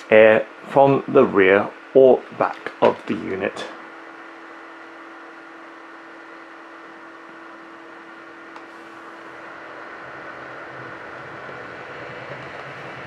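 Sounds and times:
dehumidifier fan humming: 0.0s - 13.0s.

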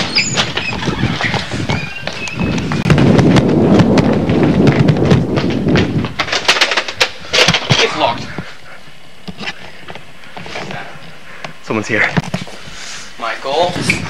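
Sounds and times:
camera handling rumble: 0.0s - 11.2s
running footsteps on tiled floor: 0.0s - 12.8s.

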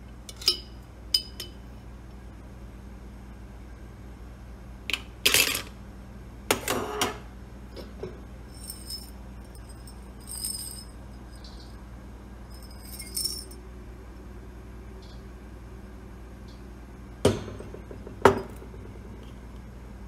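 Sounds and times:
glass clinks ringing: 12.6s - 13.6s.

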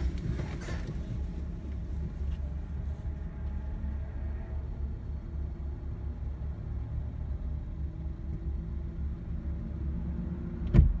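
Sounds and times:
car engine idling: 0.0s - 3.3s.

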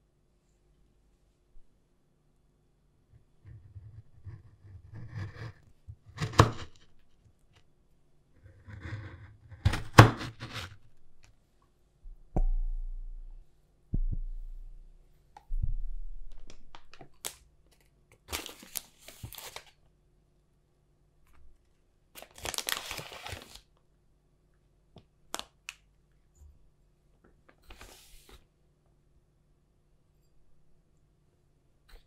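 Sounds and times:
knife crunching through crust: 5.0s - 6.9s, 8.6s - 10.8s.

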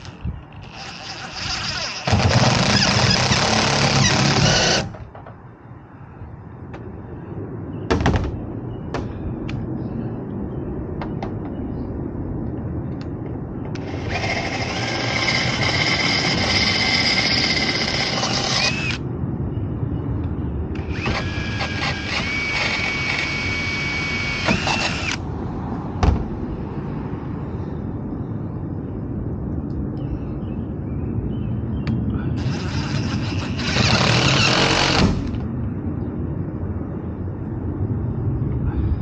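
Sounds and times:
cordless drill whining: 0.6s - 4.9s, 13.8s - 19.0s, 20.8s - 25.2s, 32.4s - 35.4s.

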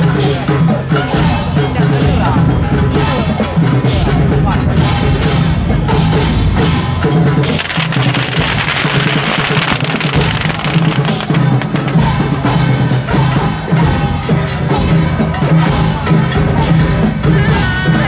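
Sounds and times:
music with drums: 0.0s - 18.0s
firecrackers crackling: 7.4s - 12.3s.

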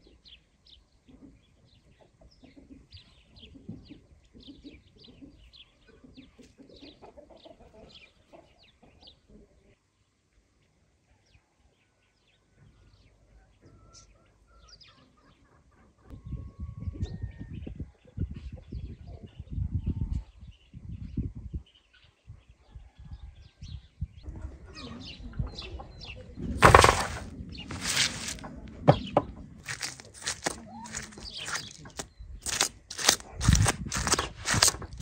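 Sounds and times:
chickens clucking: 1.1s - 9.2s
low rustling and bumping: 26.6s - 28.4s
small birds chirping: 29.0s - 35.0s.

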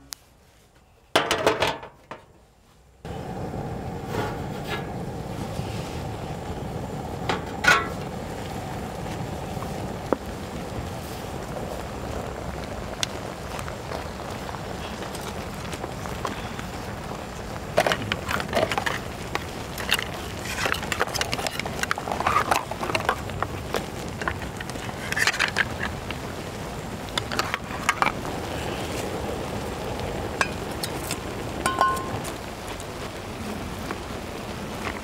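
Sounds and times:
seafood steaming hiss: 3.0s - 35.0s
spatulas stirring shellfish: 17.7s - 26.1s.

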